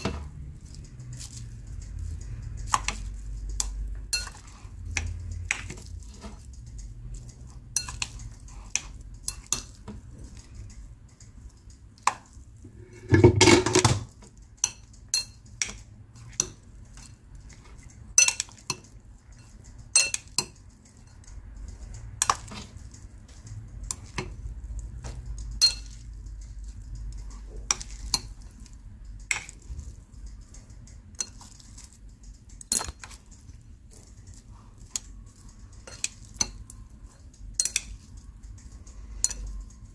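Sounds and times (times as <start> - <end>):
utensils clinking against bowl: 0.0 - 39.9
utensils clattering: 12.7 - 15.4.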